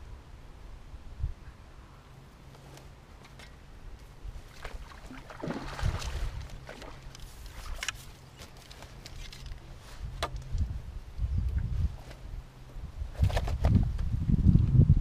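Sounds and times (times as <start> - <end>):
water splashing: 4.4 - 7.8
fishing pole sections clicking: 6.4 - 10.7.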